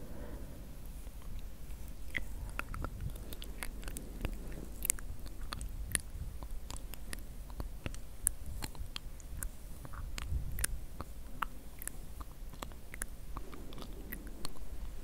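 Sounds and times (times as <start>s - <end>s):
low rumble: 0.0s - 7.9s, 12.6s - 15.0s
fingers picking at fibre crackling: 0.9s - 15.0s.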